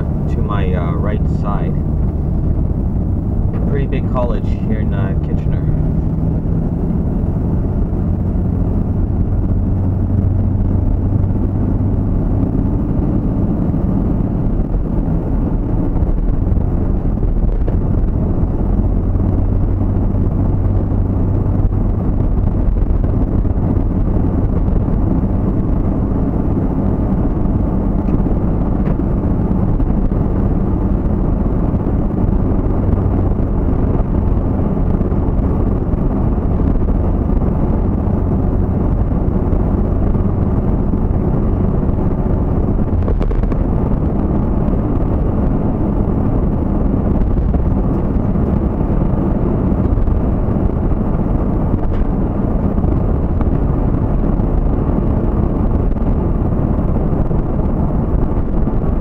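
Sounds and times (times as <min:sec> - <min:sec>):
vehicle engine and road noise: 0:00.0 - 0:59.0.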